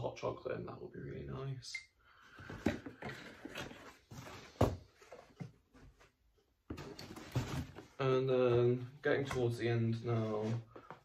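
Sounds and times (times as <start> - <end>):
cardboard box rustling and knocking: 6.7 - 7.9.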